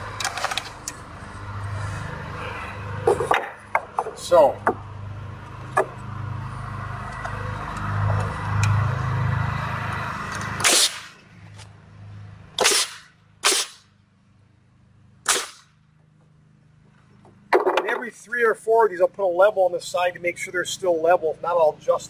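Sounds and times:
nail gun firing: 0:10.6 - 0:11.2, 0:12.6 - 0:13.9, 0:15.2 - 0:15.7.

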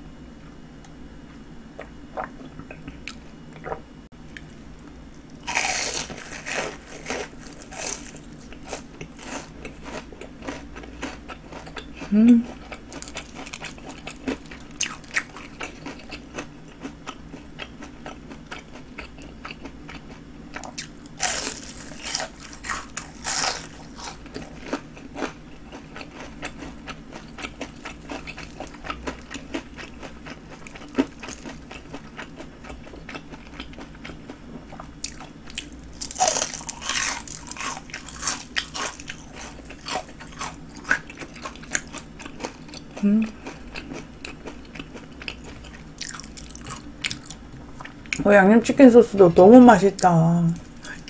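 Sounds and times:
crunching fried prawns: 0:05.4 - 0:34.3, 0:35.0 - 0:48.2.

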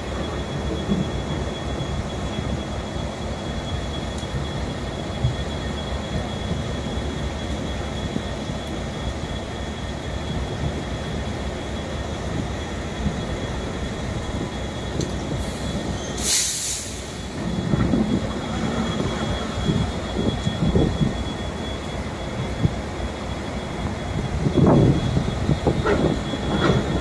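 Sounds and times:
burst of hiss: 0:15.4 - 0:17.4.

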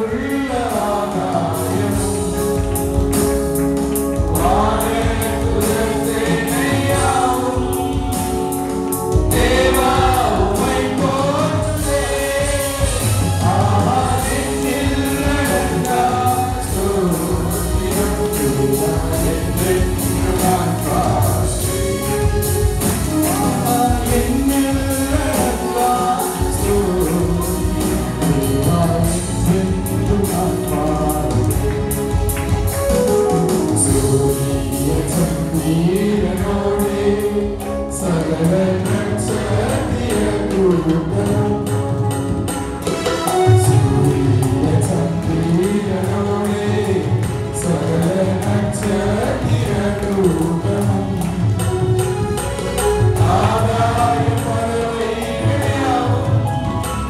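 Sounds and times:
instrumental accompaniment with beat: 0:00.0 - 0:57.0
voices singing worship song: 0:00.0 - 0:57.0.

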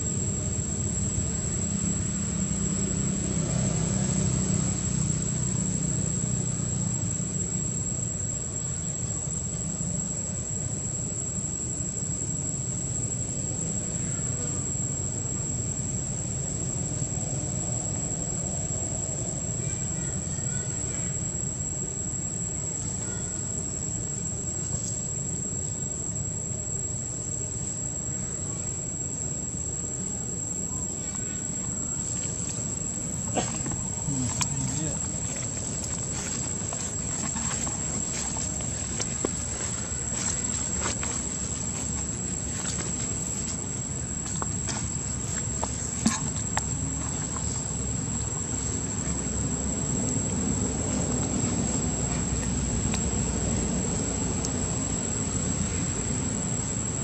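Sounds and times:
insects droning: 0:00.0 - 0:57.0
outdoor ambience rumble: 0:00.0 - 0:57.0.

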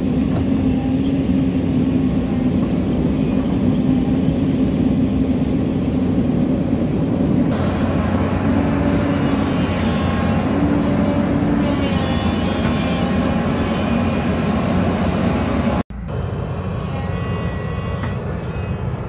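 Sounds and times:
excavator diesel engine under load: 0:00.0 - 0:19.0.

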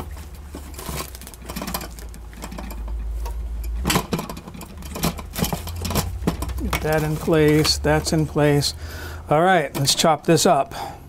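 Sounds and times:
plastic wrap crinkling: 0:00.0 - 0:03.2, 0:05.2 - 0:08.8
low steady hum: 0:00.0 - 0:11.0.

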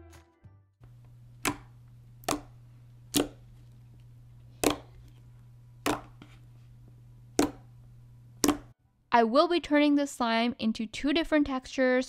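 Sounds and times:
slime popping: 0:01.4 - 0:02.5, 0:04.6 - 0:04.9.

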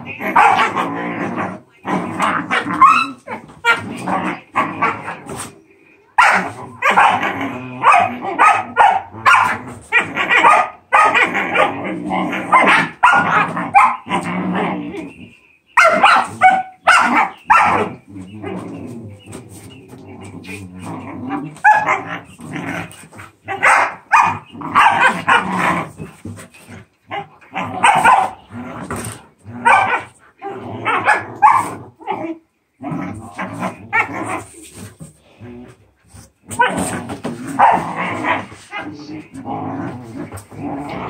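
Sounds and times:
puppies barking and yipping: 0:00.0 - 0:11.8, 0:12.4 - 0:22.4, 0:23.3 - 0:28.5, 0:29.6 - 0:30.2.

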